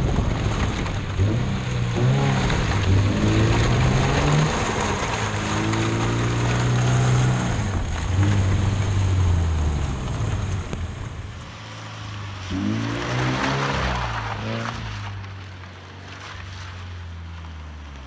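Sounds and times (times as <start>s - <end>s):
car engine revving hard: 1.2s - 10.7s, 11.3s - 15.2s.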